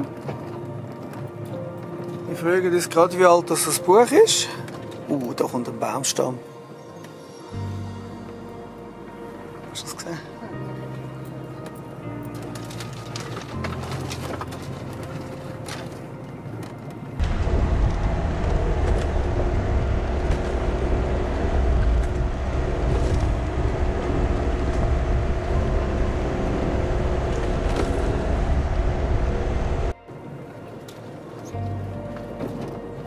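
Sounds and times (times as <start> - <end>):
van engine rumble: 7.6 - 30.0.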